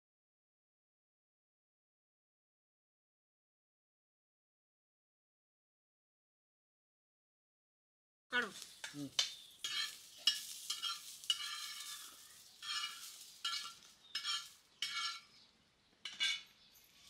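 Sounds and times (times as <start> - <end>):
chillies frying: 8.4 - 15.4
metal spatula scraping iron pan: 9.6 - 15.4, 16.0 - 17.0.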